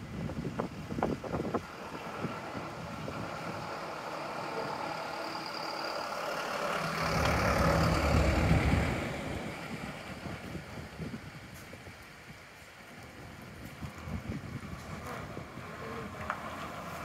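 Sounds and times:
traffic hum: 0.0 - 17.0
minibus driving past: 0.7 - 11.4.

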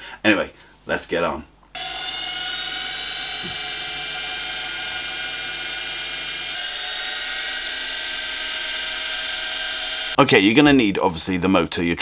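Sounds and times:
electric motor whine: 1.8 - 10.2.

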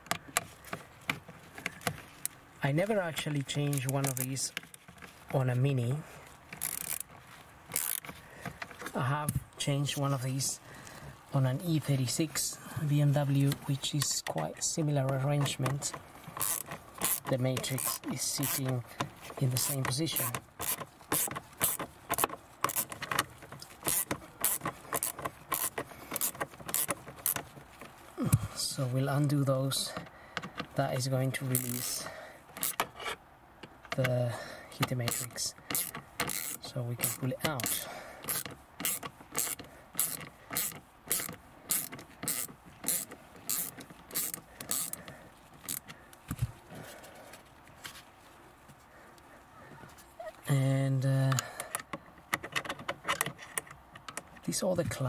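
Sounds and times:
socket ratchet clicking: 6.6 - 7.1, 7.7 - 8.1, 15.4 - 18.7, 19.5 - 27.5, 31.6 - 33.0, 35.0 - 46.0.

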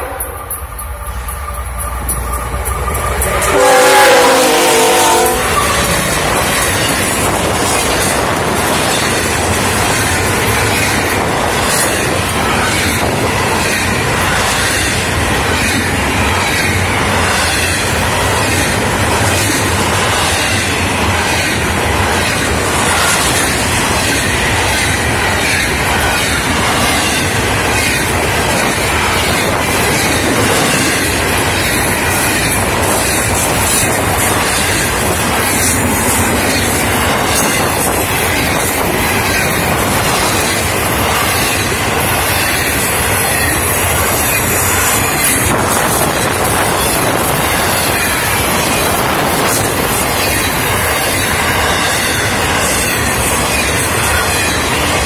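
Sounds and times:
train horn: 0.0 - 0.9, 3.2 - 6.1
wheels clacking on rails: 0.0 - 55.0.

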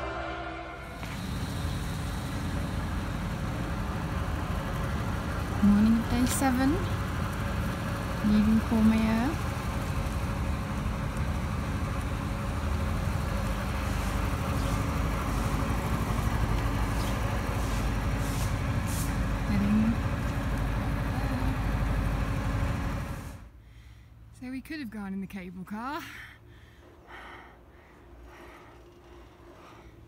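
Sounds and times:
vehicle engine running: 0.8 - 23.6.

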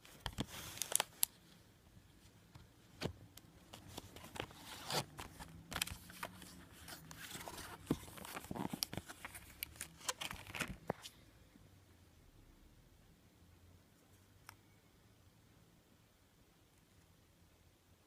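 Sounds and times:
plastic and paper crinkling: 0.0 - 1.4, 3.6 - 11.2.

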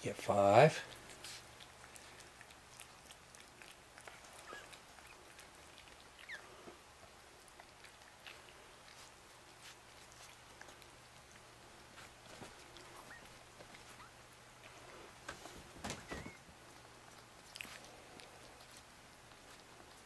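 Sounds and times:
puppies squeaking: 4.0 - 6.7, 12.8 - 14.2, 15.8 - 16.5.

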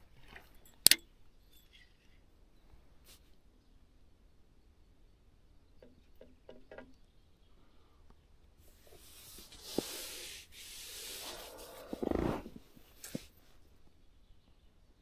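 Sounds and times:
sharp click: 0.8 - 1.0
rubbing and rustling: 8.7 - 13.6.

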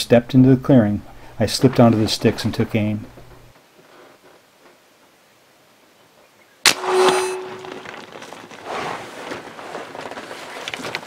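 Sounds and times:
air rifle shot: 6.7 - 7.4
brief ringing tone: 6.7 - 7.9
animal running through brush: 7.4 - 11.0.

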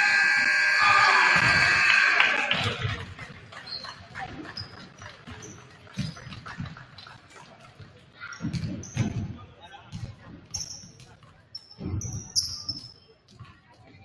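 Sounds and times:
sneaker squeaks: 3.6 - 6.7, 8.2 - 9.4, 10.5 - 13.2.

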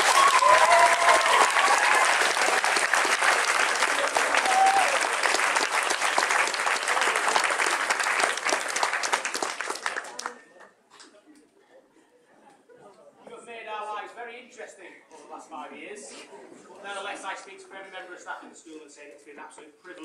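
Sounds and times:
crowd applauding: 0.0 - 10.6.

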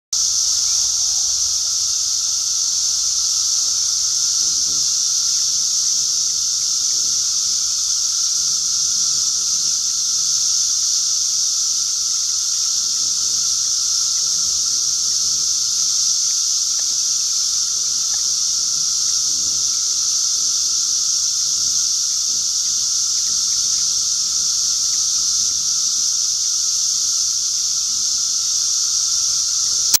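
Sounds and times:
cicadas droning: 0.2 - 30.0.

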